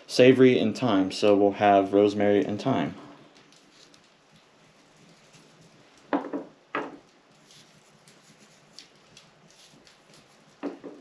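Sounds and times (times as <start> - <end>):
small dishes knocking on wooden table: 6.1 - 7.0, 10.6 - 11.0.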